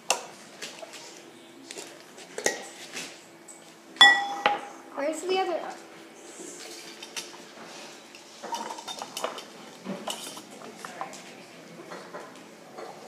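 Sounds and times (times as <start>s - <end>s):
glass jars and utensils clinking: 4.0s - 4.7s, 8.4s - 10.5s.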